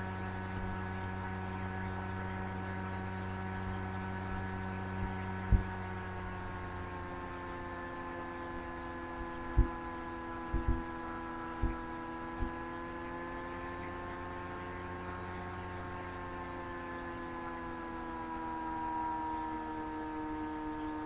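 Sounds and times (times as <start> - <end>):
steady background hum: 0.0 - 21.0
short low thumps: 5.0 - 5.8, 10.5 - 10.9.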